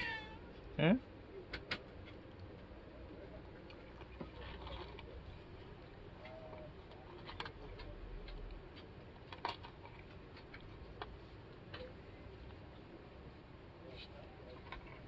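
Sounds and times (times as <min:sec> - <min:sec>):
low room noise: 0:00.0 - 0:15.0
faint clicks and taps: 0:01.4 - 0:02.7, 0:03.6 - 0:12.6.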